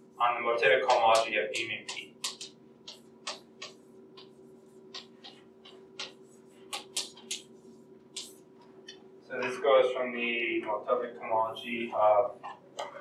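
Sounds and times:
faint hum: 0.0s - 13.0s
chalk tapping on blackboard: 0.9s - 8.4s.

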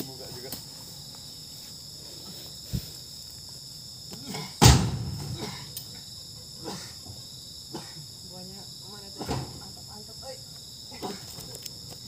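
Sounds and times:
insects trilling: 0.0s - 12.0s
fruit bunches thudding into truck bed: 4.2s - 5.6s.

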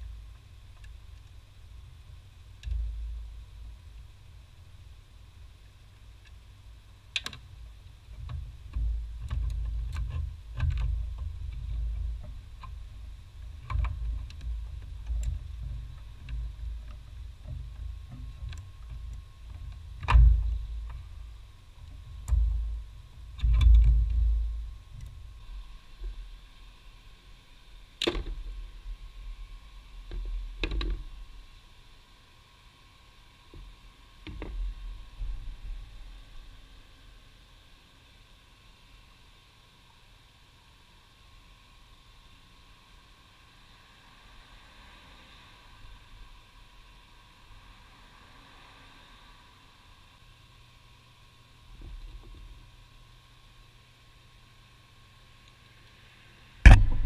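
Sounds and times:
low rumble: 56.7s - 57.0s.

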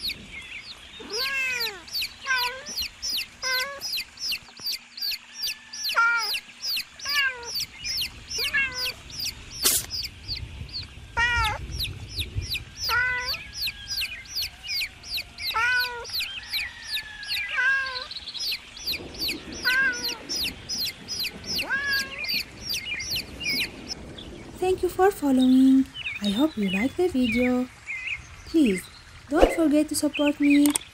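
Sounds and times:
baby chicks peeping: 0.0s - 24.0s.

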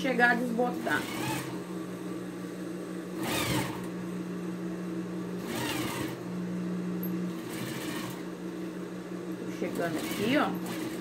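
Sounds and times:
sewing machine running: 0.5s - 1.6s, 3.2s - 3.9s, 5.4s - 6.2s, 7.3s - 8.3s, 9.6s - 11.0s.

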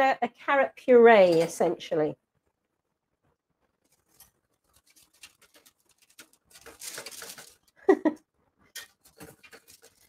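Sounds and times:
paper rustling and scraping: 3.8s - 7.8s, 8.8s - 10.0s.

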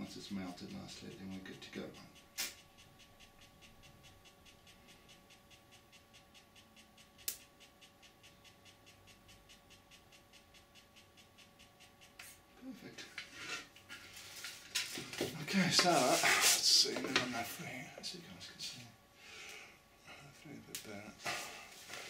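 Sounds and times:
small motor humming with soft ticks: 0.0s - 22.0s
sharp click: 2.0s - 12.4s.

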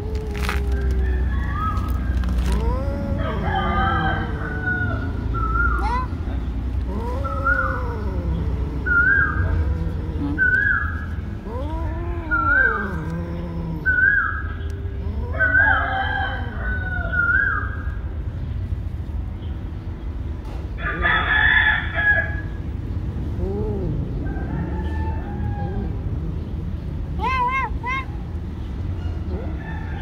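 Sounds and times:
steady low rumble: 6.2s - 15.6s
rising and falling animal calls: 6.8s - 17.8s.

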